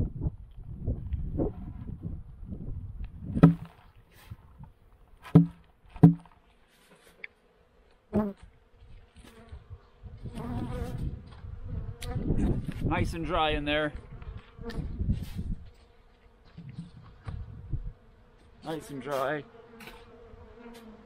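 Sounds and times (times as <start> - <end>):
wooden knocks of hive cover: 3.4 - 3.8, 5.3 - 6.4
honeybees buzzing: 5.3 - 12.9, 13.6 - 21.0.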